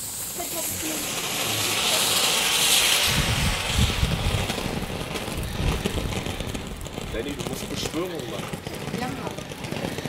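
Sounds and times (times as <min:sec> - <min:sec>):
firework fountain hissing: 0:00.0 - 0:10.0
wind rumble on microphone: 0:02.7 - 0:08.1.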